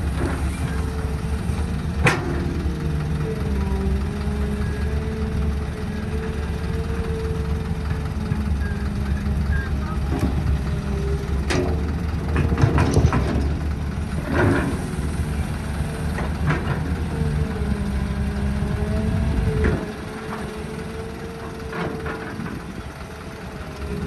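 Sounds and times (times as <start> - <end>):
excavator diesel engine: 0.0 - 24.0
sharp clanks and knocks: 2.0 - 2.7, 11.4 - 14.9.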